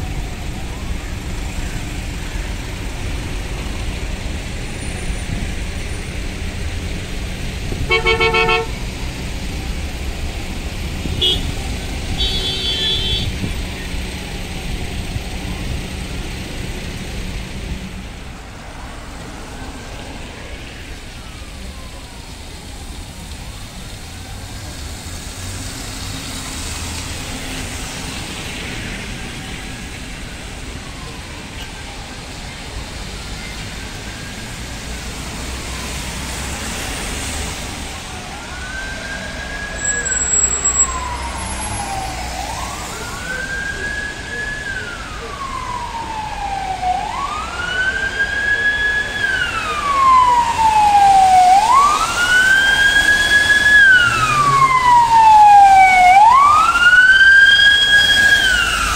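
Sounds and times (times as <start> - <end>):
traffic on wet road: 0.0 - 58.9
car horn tooting: 7.8 - 8.8, 11.2 - 13.5.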